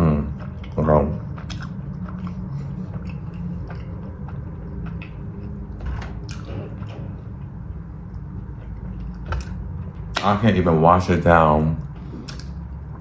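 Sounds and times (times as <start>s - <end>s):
steady low hum: 0.0s - 13.0s
close chewing: 0.2s - 7.0s.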